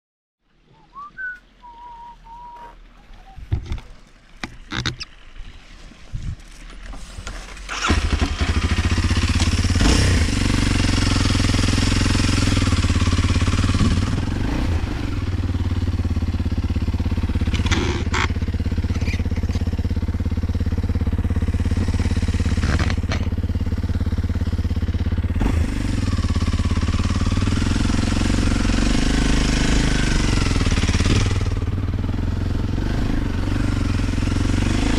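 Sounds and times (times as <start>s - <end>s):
motorcycle engine running: 7.6s - 34.9s.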